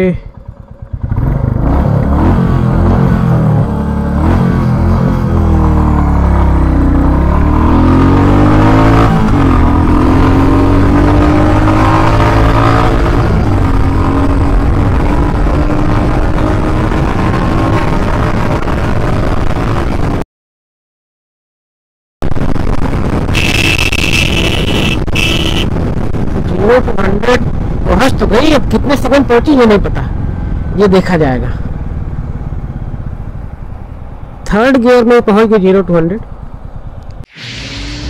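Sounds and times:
motorcycle engine accelerating: 0.0s - 20.2s, 22.6s - 26.3s.

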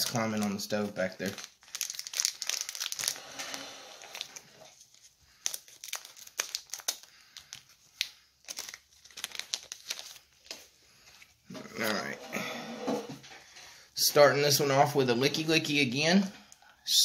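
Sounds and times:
foil wrapper crinkling and tearing: 0.0s - 10.7s.

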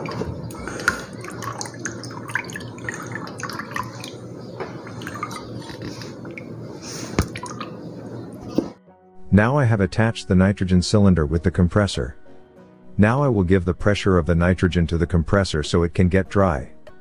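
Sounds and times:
liquid pouring and dripping into tub: 0.0s - 8.7s.

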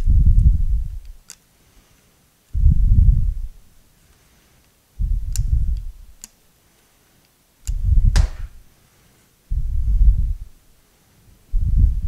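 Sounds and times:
dull low thumps: 0.0s - 1.0s, 2.6s - 3.5s, 5.0s - 6.0s, 7.7s - 8.6s, 9.5s - 10.6s, 11.5s - 12.0s
sharp metallic clicks: 5.2s - 6.4s, 7.6s - 8.3s.

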